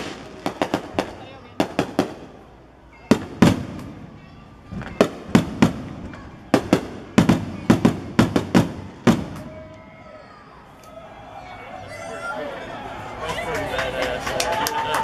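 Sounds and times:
firework shells bursting: 0:00.0 - 0:02.5.

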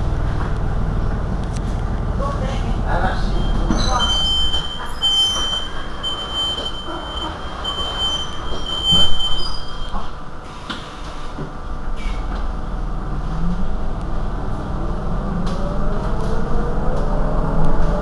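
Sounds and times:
street noise: 0:00.0 - 0:18.0
high electronic beeps: 0:03.1 - 0:10.1.

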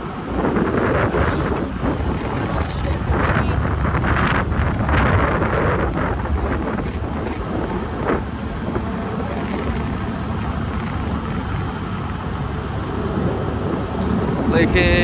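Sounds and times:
vehicle driving on road: 0:00.0 - 0:15.0.

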